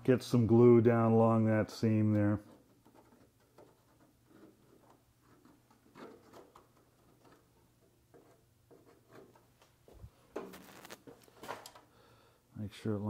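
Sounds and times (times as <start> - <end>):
faint ticks and rustles of handling: 1.9 - 11.9.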